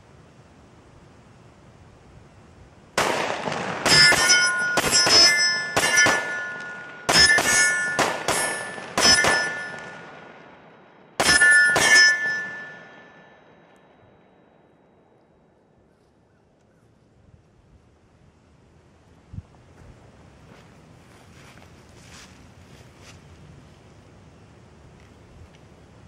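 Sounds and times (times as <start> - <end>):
pistol shots: 3.0 - 13.2
steel plates ringing: 3.8 - 14.1.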